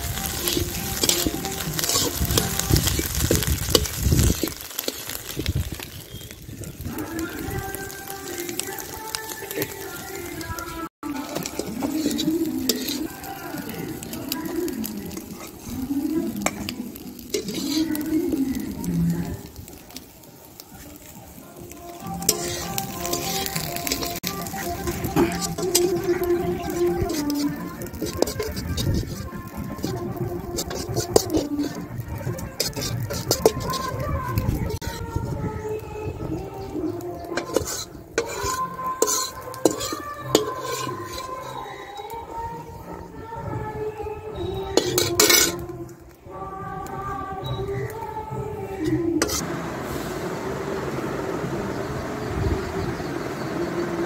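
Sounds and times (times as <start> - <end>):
metal spatula scraping wok: 0.0 - 6.4, 7.0 - 19.5, 21.0 - 35.2, 37.0 - 42.2, 44.4 - 45.8, 48.7 - 50.1
metal spatula clicking on pan: 37.4 - 41.2, 44.8 - 45.6.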